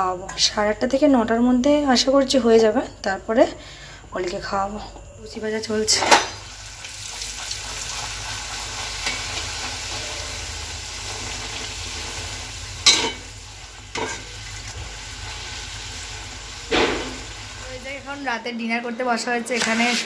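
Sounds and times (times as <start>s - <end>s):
dough deep-frying in hot oil: 5.6s - 18.5s.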